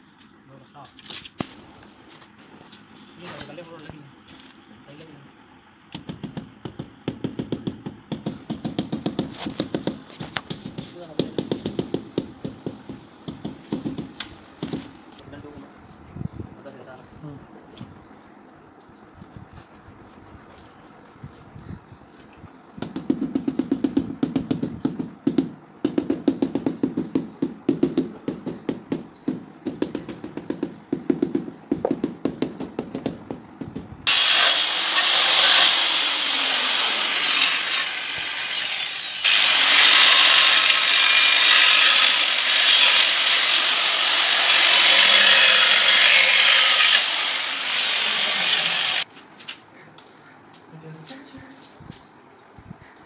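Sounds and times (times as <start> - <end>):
tile being tapped by hand: 6.0 - 14.1, 22.8 - 33.8
angle grinder cutting tiles: 34.1 - 49.0.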